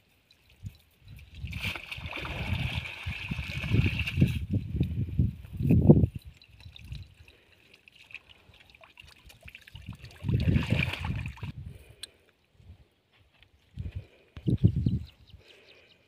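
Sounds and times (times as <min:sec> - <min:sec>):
water trickling and dripping: 0:06.0 - 0:11.5.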